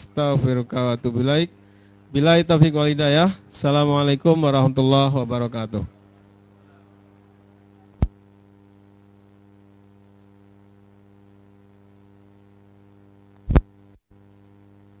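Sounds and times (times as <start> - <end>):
electrical mains hum: 0.0 - 15.0
sharp electrical pop: 13.4 - 13.7.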